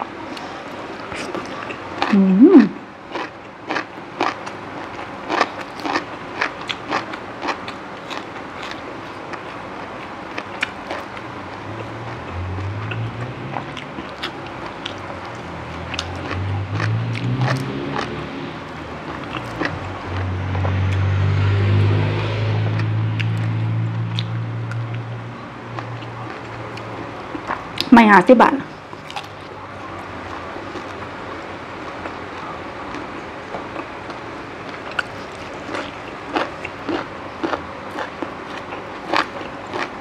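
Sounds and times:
person crunching raw vegetables: 3.1 - 21.1, 28.9 - 31.1, 31.8 - 40.0.

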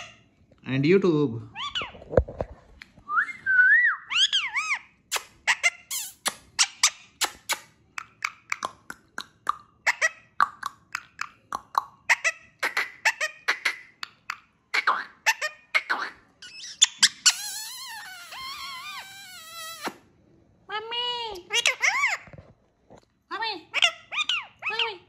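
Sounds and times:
parakeet whistling: 3.2 - 4.9
parakeet sharp chirps: 11.0 - 20.0.

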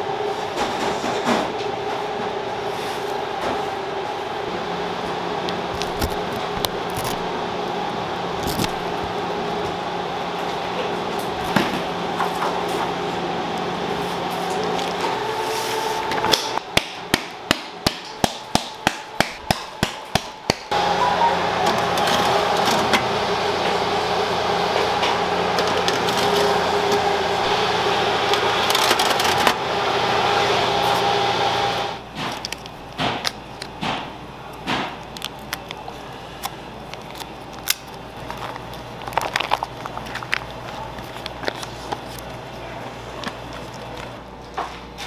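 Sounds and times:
oven fan humming: 0.0 - 45.0
foil wrapper crinkling: 5.8 - 7.3, 8.4 - 8.9, 35.0 - 42.4.

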